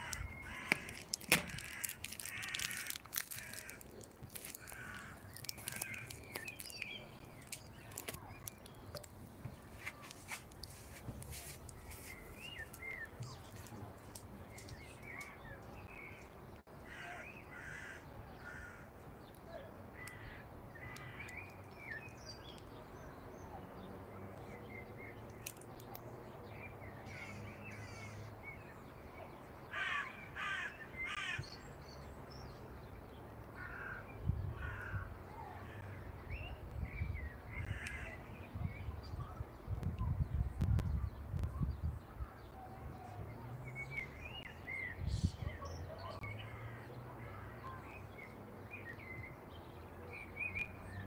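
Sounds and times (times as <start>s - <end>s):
crows cawing: 0.0s - 6.2s, 16.8s - 18.9s, 29.7s - 31.4s, 33.6s - 34.0s, 34.6s - 35.8s.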